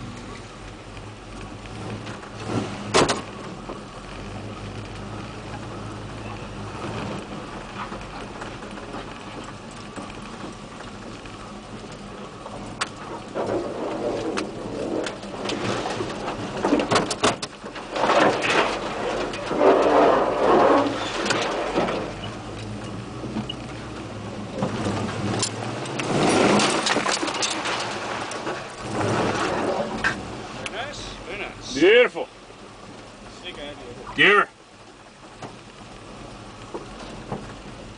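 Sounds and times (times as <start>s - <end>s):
truck engine running low: 0.0s - 37.9s
truck body knocking and rattling: 1.2s - 4.4s, 5.0s - 30.4s, 36.7s - 37.9s.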